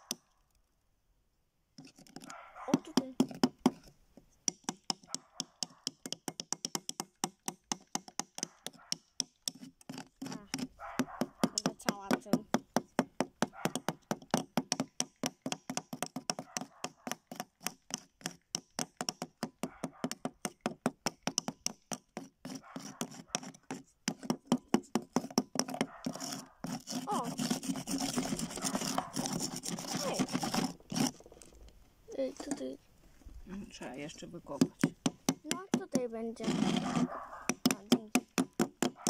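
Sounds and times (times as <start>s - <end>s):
scraping and rubbing on plaster: 1.8s - 4.3s, 7.8s - 31.7s, 34.6s - 39.0s
metal hammers tapping a chisel: 2.8s - 10.7s, 11.3s - 16.4s, 17.1s - 22.3s, 37.5s - 39.0s.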